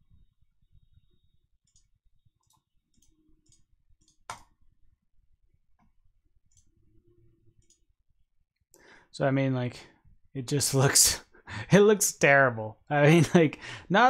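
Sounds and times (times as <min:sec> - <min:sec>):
computer mouse clicks: 0:01.6 - 0:04.6, 0:07.6 - 0:07.9.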